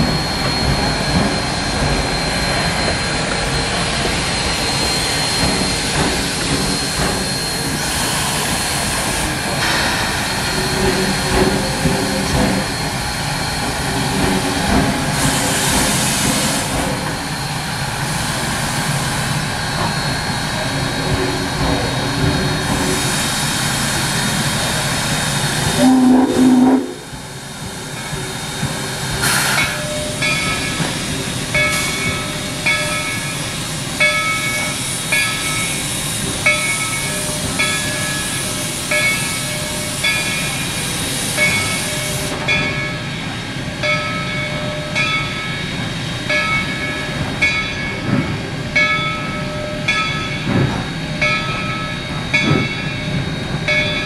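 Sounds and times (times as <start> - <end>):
train rumbling and clanking past: 0.0 - 54.0
hiss of steam: 2.2 - 42.5.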